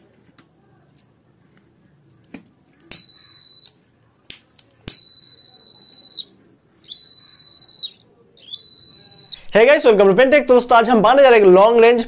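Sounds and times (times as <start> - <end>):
high-pitched buzzer beep: 2.9 - 3.8, 4.9 - 6.3, 6.9 - 9.5.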